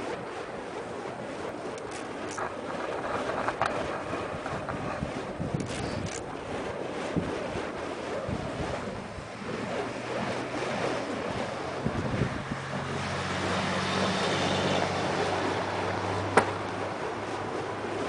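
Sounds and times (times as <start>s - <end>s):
vehicle engine hum: 0.0s - 6.4s, 8.3s - 18.0s
wind noise on microphone: 0.0s - 18.0s
road traffic: 12.3s - 17.8s.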